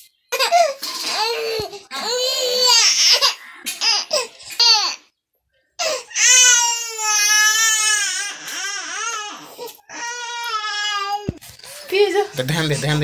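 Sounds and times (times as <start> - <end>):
baby crying: 0.4 - 5.1, 5.8 - 11.4.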